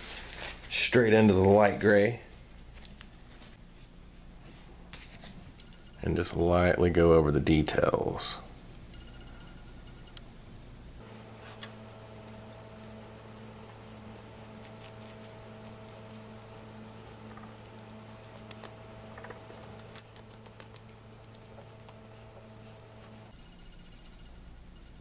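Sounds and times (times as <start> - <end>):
steady low hum: 2.2 - 25.0
paintbrush scratching ticks: 11.2 - 23.4.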